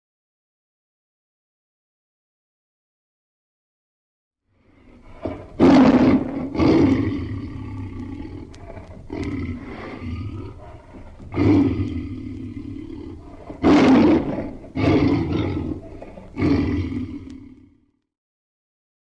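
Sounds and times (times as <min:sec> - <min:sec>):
tiger roaring: 0:04.6 - 0:17.9.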